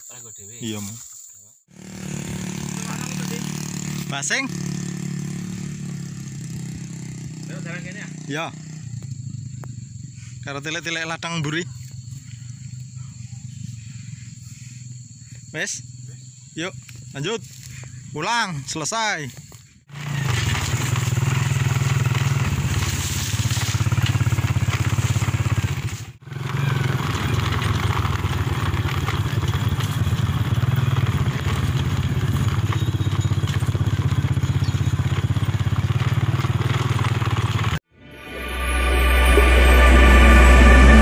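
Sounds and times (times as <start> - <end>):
motorcycle engine running: 1.7 - 18.1, 19.4 - 41.0.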